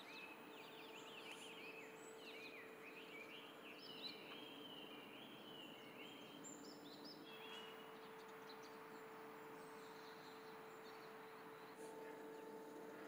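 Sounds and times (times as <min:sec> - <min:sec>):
birds chirping: 0:00.0 - 0:13.0
faint steady hum: 0:00.0 - 0:13.0.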